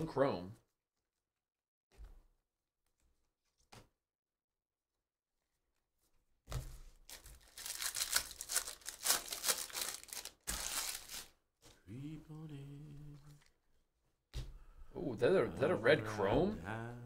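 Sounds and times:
foil wrapper tearing and crinkling: 0:07.1 - 0:11.3
person humming: 0:11.9 - 0:13.4, 0:15.6 - 0:17.0.

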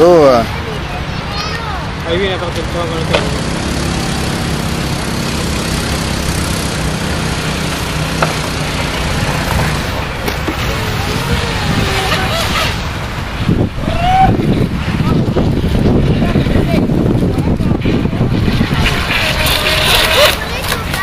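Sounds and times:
steady rushing background: 0:00.6 - 0:21.0
model speedboat motor: 0:02.0 - 0:12.9, 0:18.3 - 0:21.0.

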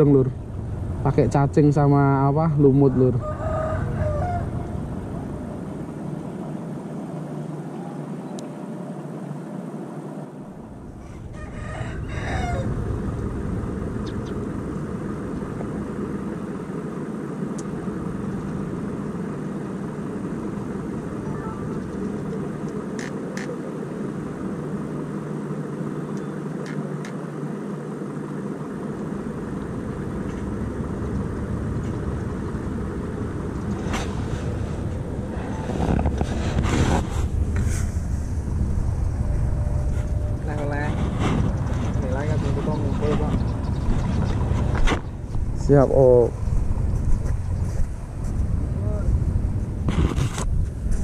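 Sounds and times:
low background rumble: 0:00.0 - 0:51.0
rooster crowing: 0:02.8 - 0:05.5, 0:11.0 - 0:13.2.

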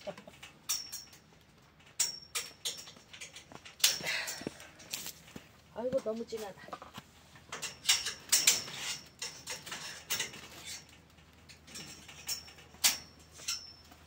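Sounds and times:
metallic clicks and clinks: 0:00.0 - 0:05.0, 0:07.5 - 0:14.0.

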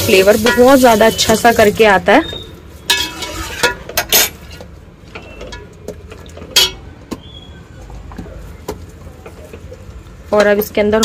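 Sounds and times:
low steady frying hiss: 0:00.0 - 0:06.7
metal spoon scraping cooking pot: 0:02.2 - 0:05.7.

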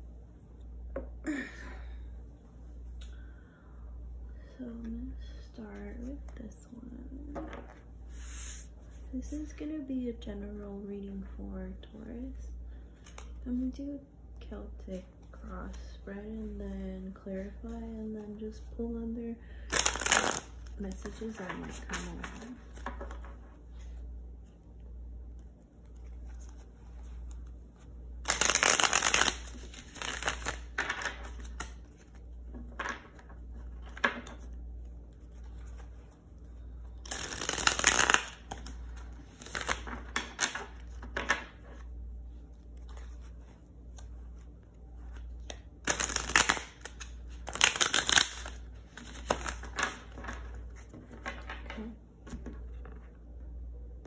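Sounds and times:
low steady hum: 0:00.0 - 0:54.0
cards being shuffled: 0:19.7 - 0:24.0, 0:25.3 - 0:53.1.

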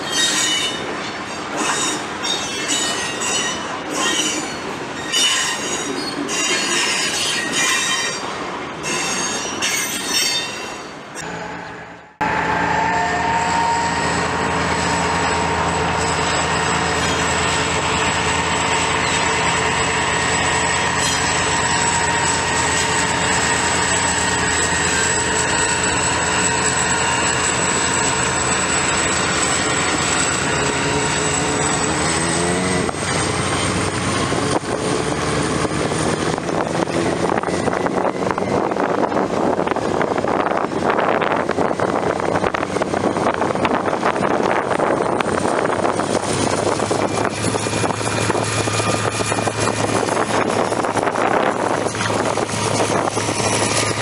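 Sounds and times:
diesel locomotive drone: 0:00.0 - 0:54.0
train wheels squealing on rails: 0:00.0 - 0:54.0
high whine: 0:11.2 - 0:34.8.

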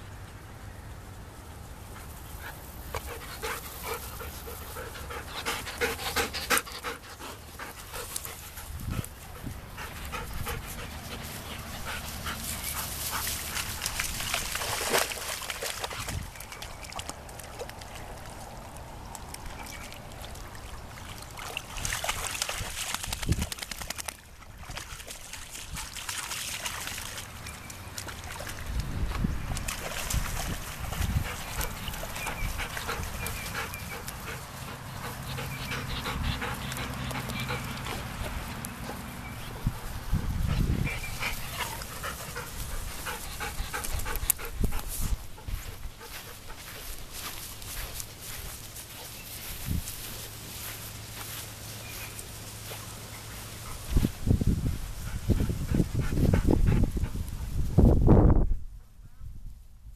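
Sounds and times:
puppies panting: 0:02.0 - 0:14.1, 0:30.9 - 0:49.6, 0:55.0 - 0:57.6
water splashing: 0:11.4 - 0:23.6, 0:24.2 - 0:28.9.

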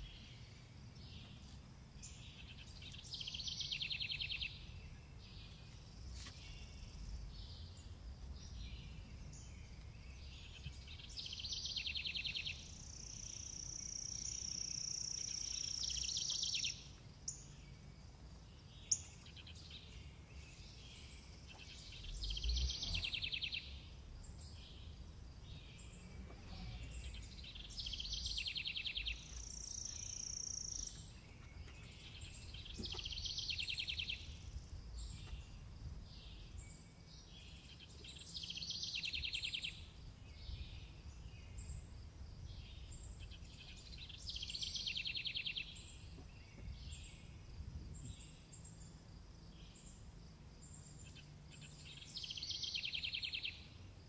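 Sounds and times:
outdoor background noise: 0:00.0 - 0:54.0
songbird trilling and whistling: 0:10.4 - 0:17.5.

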